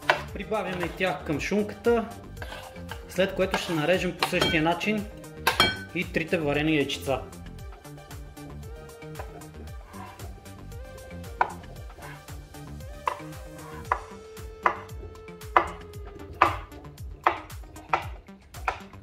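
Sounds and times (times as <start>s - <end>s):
knife cutting on cutting board: 0.0s - 1.2s, 2.1s - 4.5s, 9.1s - 10.4s, 11.3s - 12.4s, 13.0s - 15.8s, 16.4s - 19.0s.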